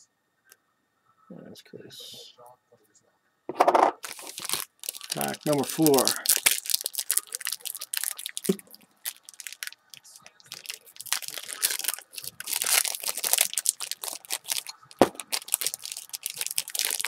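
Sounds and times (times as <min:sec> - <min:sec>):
foil wrapper crinkling and tearing: 0:04.0 - 0:17.0.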